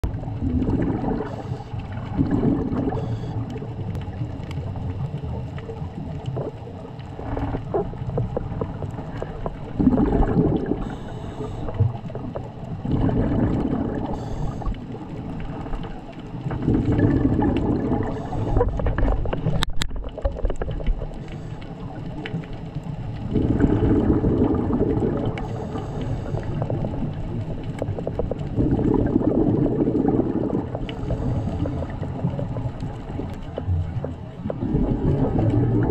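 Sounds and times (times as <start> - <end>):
underwater bubbles from exhalation: 0.0 - 35.9
underwater hiss: 9.9 - 12.0, 13.5 - 14.9, 17.7 - 18.8, 23.3 - 26.8, 29.7 - 32.2.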